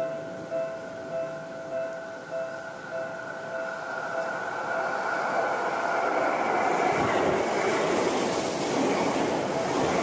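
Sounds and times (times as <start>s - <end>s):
train wheels rushing on rails: 0.0s - 10.0s.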